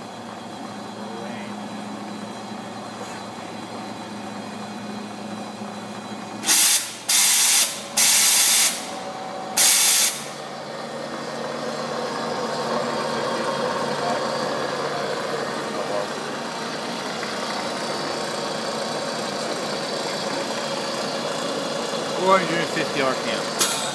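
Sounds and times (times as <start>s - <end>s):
machine humming: 0.0s - 23.9s
compressed air hissing blasts: 6.4s - 9.0s, 9.6s - 10.4s.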